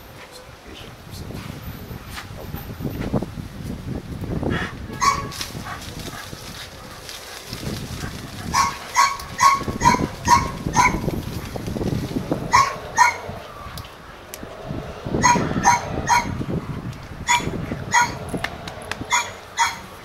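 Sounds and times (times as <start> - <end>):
dog barking: 5.0 - 5.8, 8.4 - 11.1, 12.5 - 13.3, 15.2 - 16.3, 17.3 - 18.2, 19.1 - 19.9.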